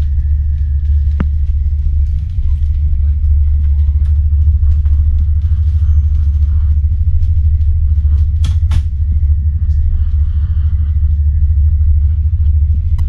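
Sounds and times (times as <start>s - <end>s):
ferry engines droning: 0.0s - 13.0s.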